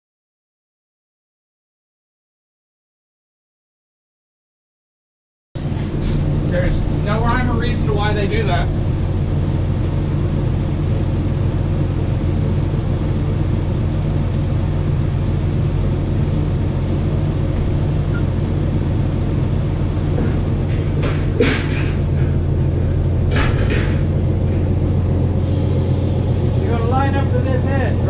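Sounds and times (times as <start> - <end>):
truck engine idling: 5.6 - 28.0
metal clanks: 20.1 - 24.8.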